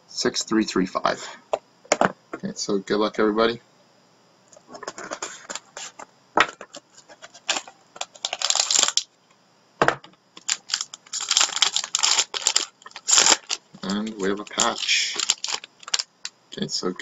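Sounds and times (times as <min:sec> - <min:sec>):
wrapper crackling: 0:07.3 - 0:09.1, 0:10.4 - 0:16.3.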